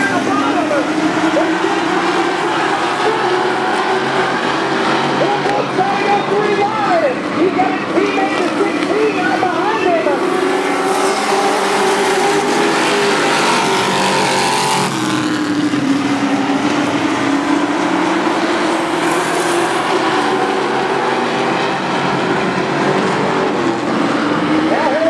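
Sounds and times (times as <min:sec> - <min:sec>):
race truck engines: 0:00.0 - 0:25.0.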